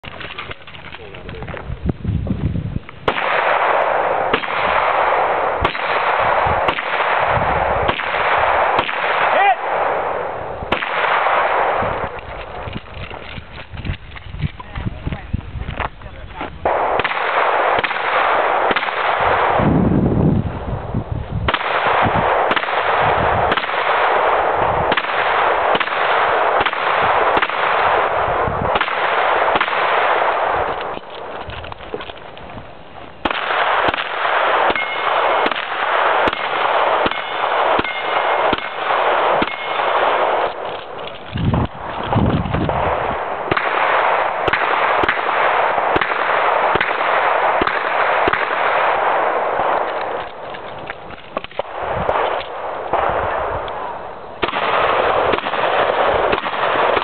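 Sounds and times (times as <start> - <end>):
close loud gunshots: 3.0 - 12.7, 16.6 - 19.7, 21.4 - 31.2, 33.2 - 50.5, 54.4 - 57.0.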